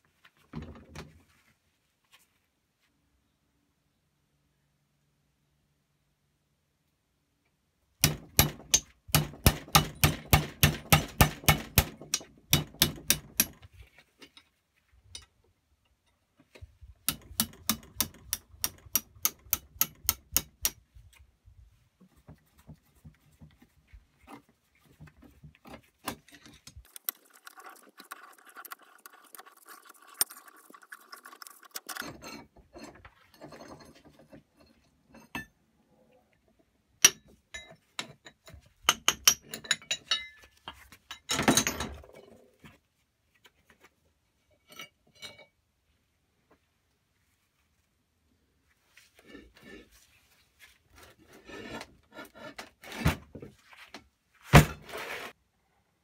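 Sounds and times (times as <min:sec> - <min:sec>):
hammer tapping metal: 0:08.0 - 0:13.6, 0:17.1 - 0:20.8.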